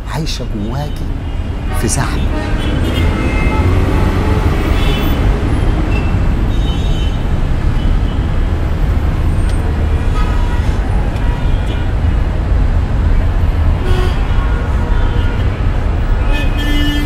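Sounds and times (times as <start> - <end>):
dense road traffic rumble: 0.0 - 17.0.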